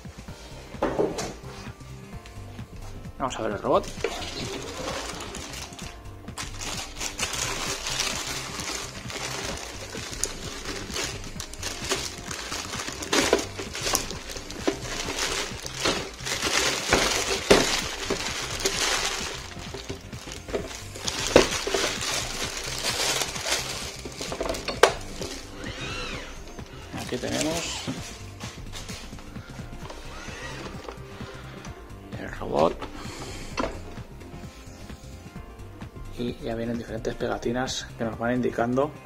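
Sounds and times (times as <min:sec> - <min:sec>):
plastic film crinkling: 0:03.6 - 0:31.4.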